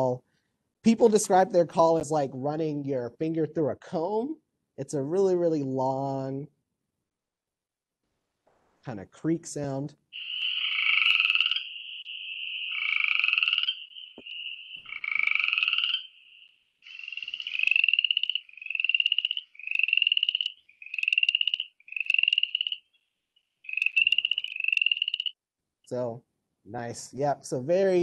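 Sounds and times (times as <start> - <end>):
frogs calling with rising creaks: 10.1 - 25.4.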